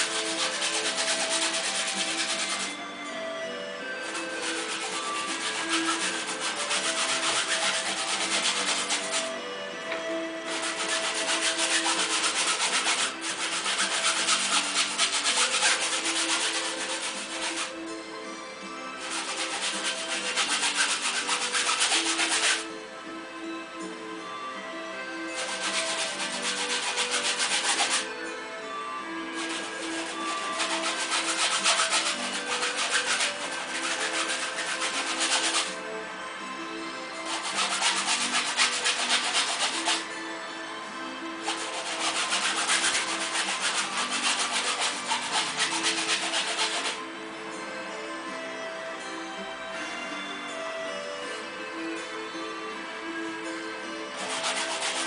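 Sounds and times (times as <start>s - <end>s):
paintbrush scrubbing canvas: 0.0s - 2.8s, 4.0s - 9.3s, 10.4s - 17.8s, 19.0s - 22.6s, 25.4s - 28.1s, 29.4s - 35.8s, 37.2s - 40.1s, 41.4s - 47.0s, 54.2s - 55.0s
soft background music: 0.0s - 55.0s.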